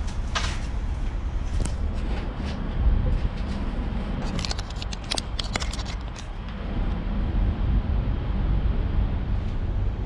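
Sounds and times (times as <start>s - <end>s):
sharp metallic clicks and scrapes: 3.2s - 6.4s.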